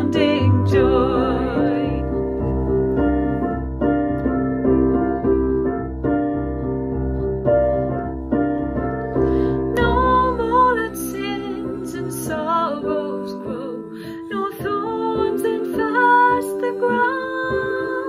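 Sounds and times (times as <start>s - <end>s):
piano chords: 0.0s - 18.0s.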